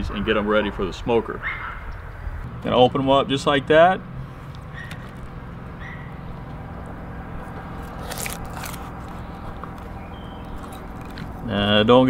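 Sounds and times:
knife crunching scrapes: 7.4 - 9.9, 10.5 - 11.4.

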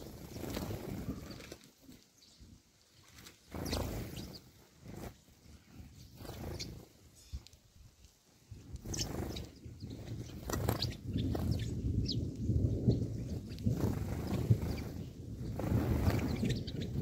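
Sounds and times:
wind rumbling on microphone: 0.0 - 1.6, 3.4 - 17.0
sparrows chirping: 3.5 - 7.5, 8.8 - 17.0.

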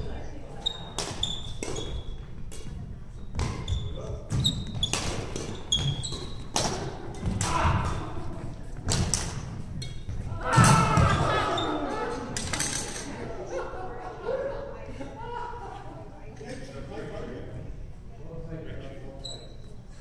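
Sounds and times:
shoes squeaking on wooden floor: 3.2 - 6.5
racket striking shuttlecock: 4.9 - 8.0.

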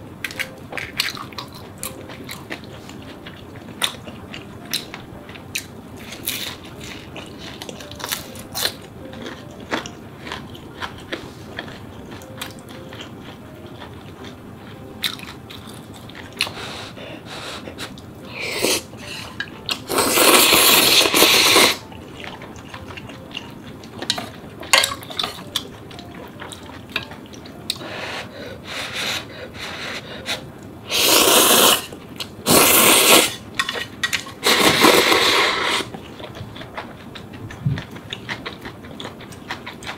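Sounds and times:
chewing with wet mouth clicks: 0.3 - 16.6, 35.9 - 39.9
slurping noodles: 19.9 - 21.8, 30.9 - 31.9, 32.5 - 33.4, 34.4 - 35.9.

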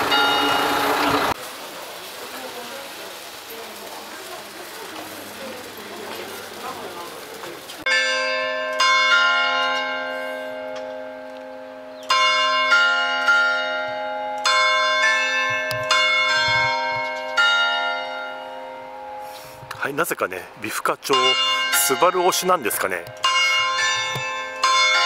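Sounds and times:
bell-like chimes melody: 0.1 - 1.4, 21.0 - 25.0.

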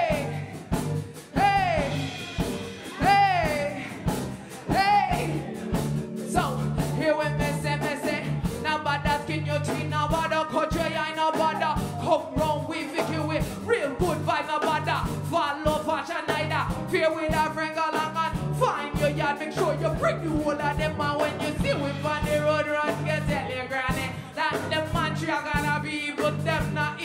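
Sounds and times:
electric keyboard: 0.0 - 26.9
bass and drum beat: 0.0 - 27.0
woman singing: 2.8 - 5.7.

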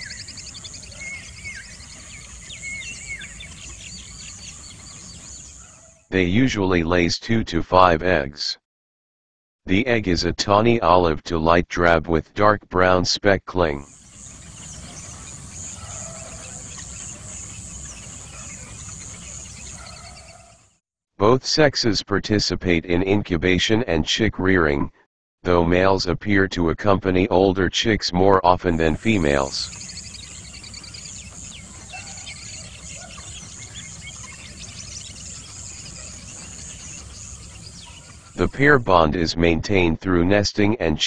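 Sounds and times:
birds chirping: 0.0 - 6.7, 13.6 - 20.8, 28.7 - 39.0
insects buzzing: 13.9 - 20.7, 29.6 - 38.4.

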